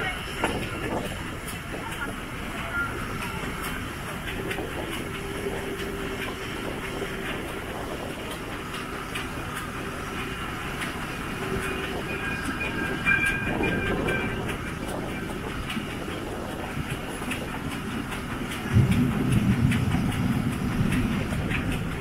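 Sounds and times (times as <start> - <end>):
steam locomotive running: 0.0 - 22.0
wheels clicking over rail joints: 0.0 - 22.0
thin high squeal: 12.0 - 14.5.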